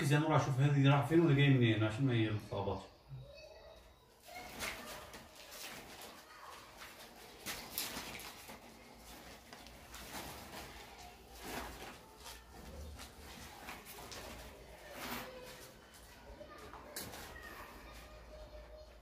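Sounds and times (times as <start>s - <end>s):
rustling of electrical wires: 3.8s - 19.0s.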